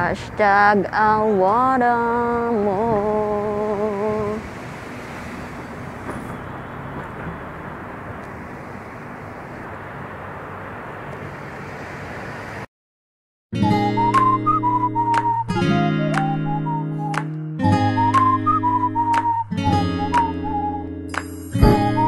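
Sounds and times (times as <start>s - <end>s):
road traffic: 0.0s - 12.7s.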